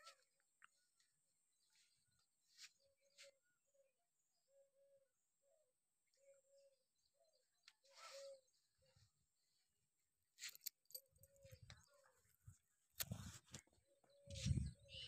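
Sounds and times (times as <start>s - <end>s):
brief rustle: 10.4s - 11.8s.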